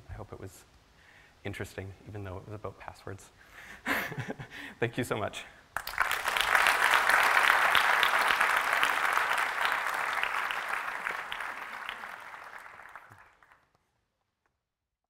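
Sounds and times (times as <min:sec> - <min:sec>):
audience applauding: 0:05.8 - 0:13.8.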